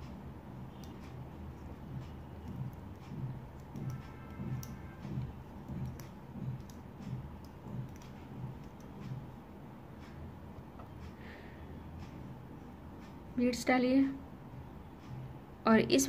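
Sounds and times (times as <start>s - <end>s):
tatting shuttle soft thumps: 0.0s - 9.4s
light clicks of tatting shuttle: 0.8s - 9.4s.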